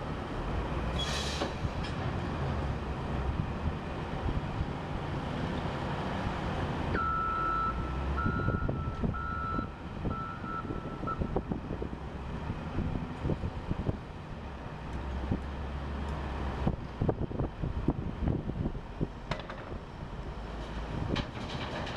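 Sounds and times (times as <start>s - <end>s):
reverse alarm beeping: 7.0s - 11.3s.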